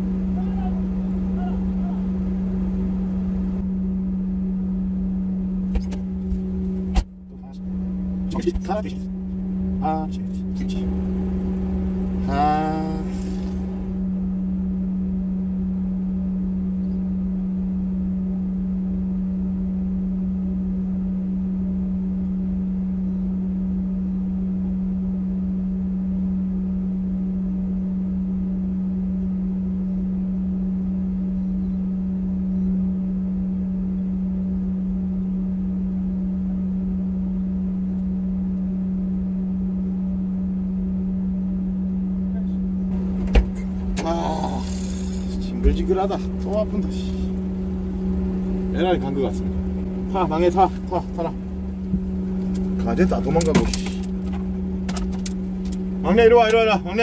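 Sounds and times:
vehicle idling: 0:00.0 - 0:15.4, 0:41.2 - 0:57.0.

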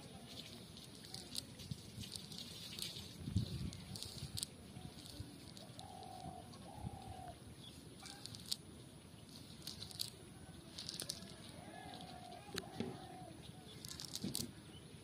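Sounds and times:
bird calling: 0:04.8 - 0:08.6, 0:10.4 - 0:14.9
net mesh clicking and rustling: 0:08.0 - 0:08.6, 0:09.5 - 0:12.8, 0:13.7 - 0:14.6.

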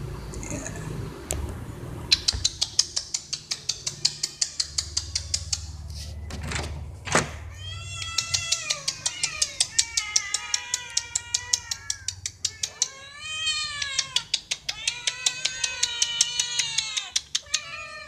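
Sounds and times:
cats meowing: 0:02.0 - 0:06.4, 0:07.4 - 0:18.0.

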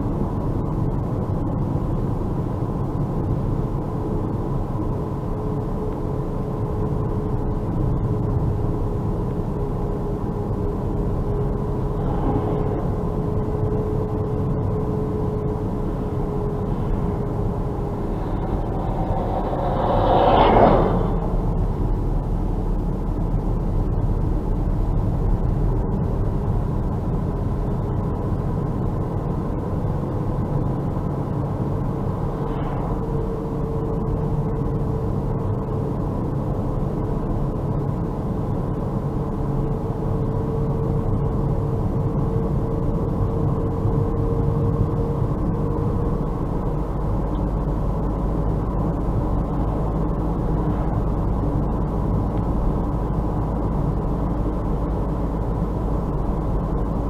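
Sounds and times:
faint whine: 0:00.0 - 0:57.0
tyre noise on snowy road: 0:05.2 - 0:39.7.

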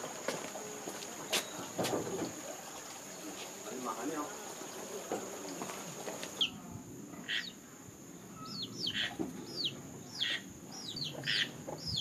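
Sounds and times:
chick peeping: 0:08.4 - 0:12.0.

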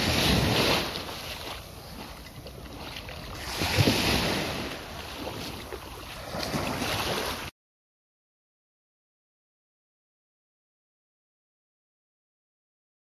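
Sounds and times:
small waves washing ashore: 0:00.0 - 0:07.5.

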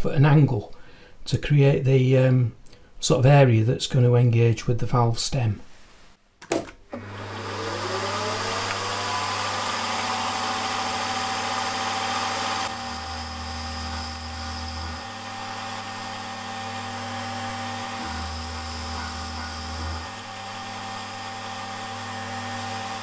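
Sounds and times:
milling machine whining: 0:06.9 - 0:23.0.

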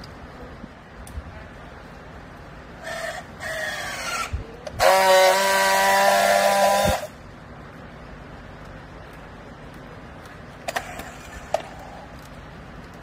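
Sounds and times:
steady welding buzz: 0:00.0 - 0:13.0
strapping tool motor whirring: 0:03.4 - 0:07.1.

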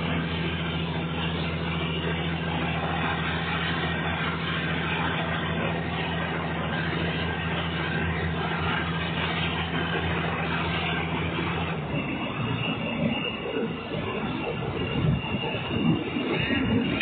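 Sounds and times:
diesel train engine drone: 0:00.0 - 0:17.0
wheels rumbling on rail: 0:00.0 - 0:17.0.

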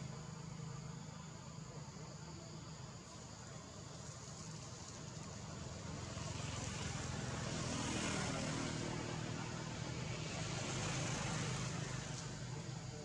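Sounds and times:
even hiss: 0:00.0 - 0:07.6.

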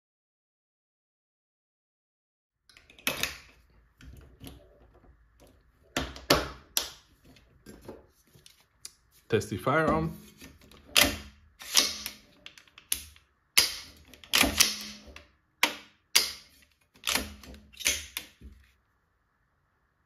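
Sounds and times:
rifle action metallic clacks: 0:10.7 - 0:18.4.

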